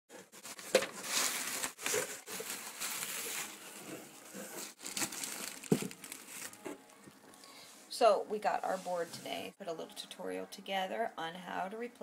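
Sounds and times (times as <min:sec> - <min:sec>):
bubble wrap and plastic crinkling: 0:00.1 - 0:07.5.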